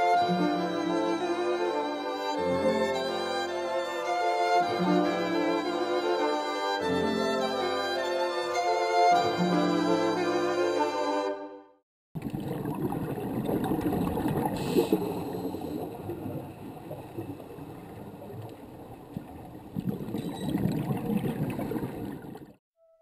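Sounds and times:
underwater rushing and gurgling: 0:12.2 - 0:22.6
brief hiss: 0:14.6 - 0:15.8.

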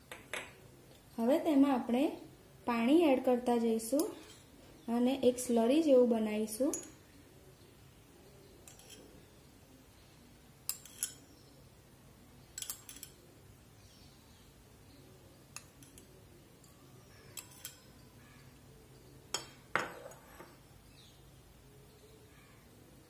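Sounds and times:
spoon clinking on glass bowl: 0:10.7 - 0:11.4, 0:15.6 - 0:18.1.

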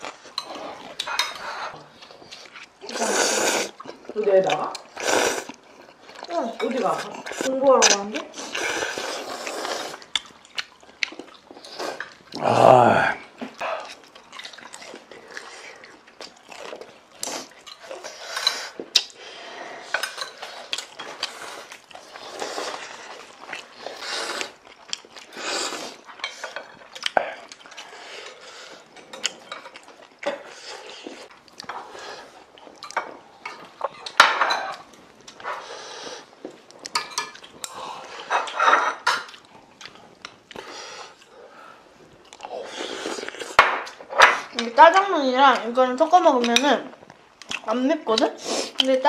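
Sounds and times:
utensils clinking on dishes: 0:00.4 - 0:01.8, 0:19.6 - 0:21.3, 0:36.9 - 0:39.3.

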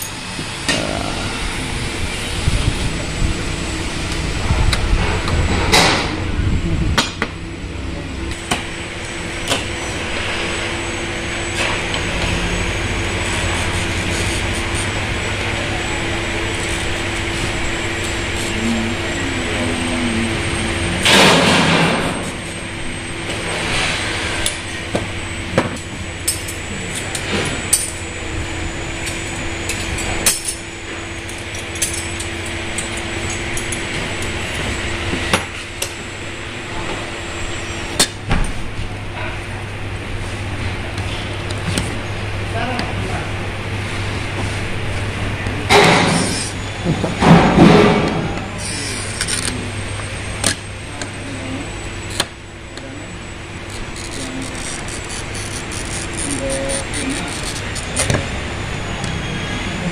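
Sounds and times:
steady hum: 0:00.0 - 0:59.9
glass cutter scratching: 0:12.3 - 0:22.6, 0:45.8 - 0:46.6, 0:48.6 - 0:49.6, 0:53.6 - 0:58.3.

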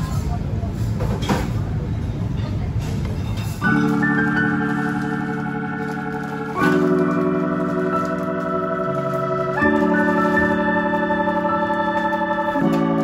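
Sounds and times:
sustained organ chords: 0:03.7 - 0:13.0.

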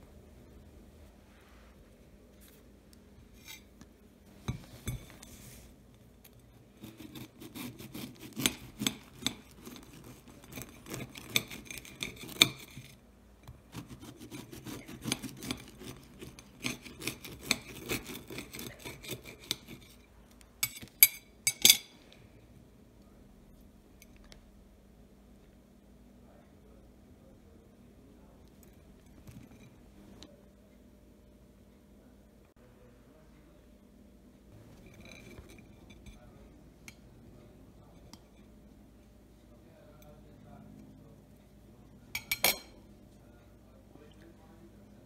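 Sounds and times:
bread knife sawing crusty loaf: 0:06.7 - 0:12.8, 0:13.7 - 0:19.9
knife clinking on ceramic plate: 0:42.2 - 0:42.8.

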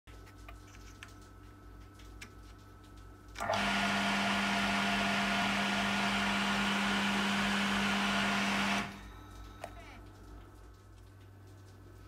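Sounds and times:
electric water pump humming: 0:02.6 - 0:11.9.

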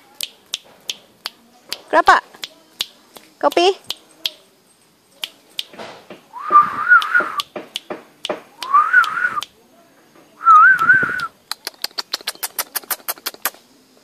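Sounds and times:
sharp clicks: 0:00.2 - 0:04.4, 0:05.2 - 0:09.6, 0:10.6 - 0:13.6
person whistling: 0:06.4 - 0:07.4, 0:08.6 - 0:09.4, 0:10.4 - 0:11.3.

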